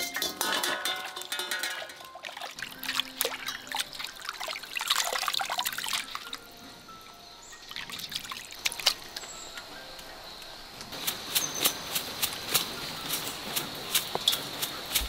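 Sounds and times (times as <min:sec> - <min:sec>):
light background music: 0:00.0 - 0:15.0
water splash: 0:00.4 - 0:06.3
hands sloshing fish in water: 0:02.2 - 0:06.4.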